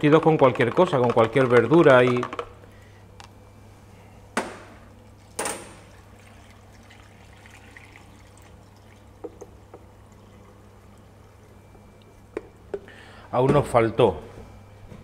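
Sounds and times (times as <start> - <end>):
liquid trickling into glass jar: 5.2 - 12.3.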